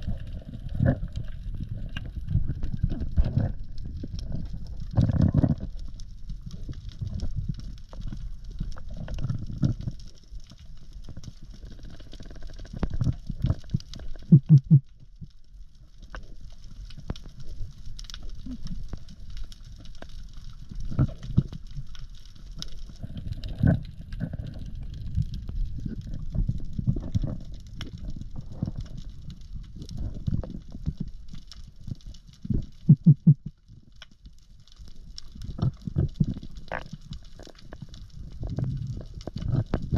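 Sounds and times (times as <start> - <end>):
water movement: 0.0 - 14.9, 16.1 - 33.7, 34.7 - 39.9
faint crackling hiss: 0.0 - 39.9.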